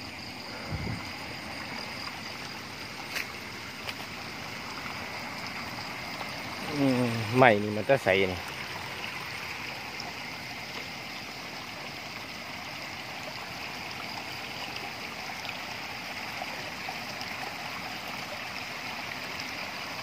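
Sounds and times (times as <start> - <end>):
shallow water rushing: 0.0 - 20.0.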